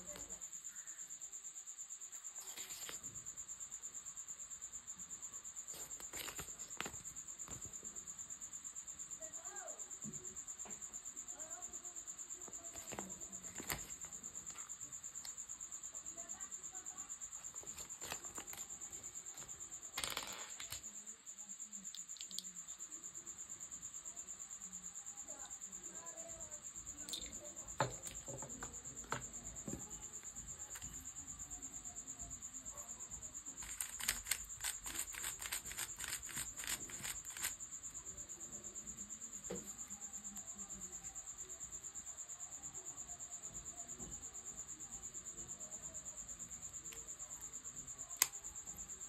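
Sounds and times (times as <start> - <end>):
cricket chirping trill: 0.0 - 49.0
paper leaflet rustling: 5.8 - 6.9, 33.6 - 37.5
plastic parts clicking: 33.6 - 37.5.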